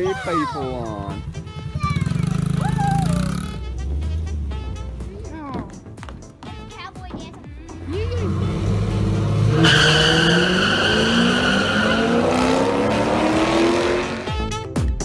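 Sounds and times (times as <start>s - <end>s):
drag racing engines revving: 7.8s - 14.3s
tire squeal: 8.1s - 14.2s.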